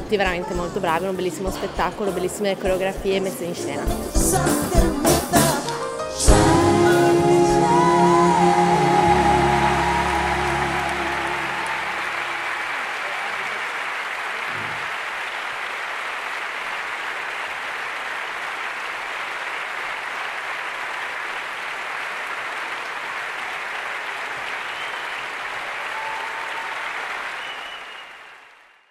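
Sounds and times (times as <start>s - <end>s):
theatre audience applauding: 7.2s - 28.9s.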